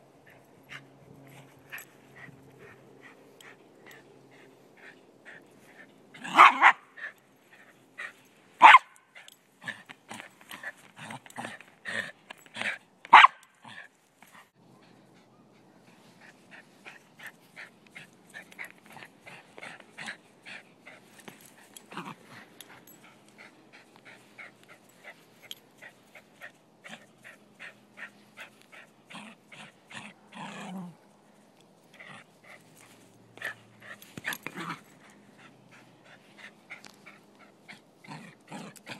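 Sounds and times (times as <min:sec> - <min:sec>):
dog barking: 0:06.3 - 0:06.8, 0:08.6 - 0:08.9, 0:13.1 - 0:13.4.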